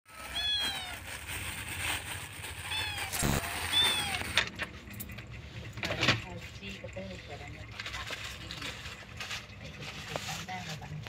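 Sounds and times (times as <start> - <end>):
cat meowing: 0.1 - 1.1, 2.6 - 4.4.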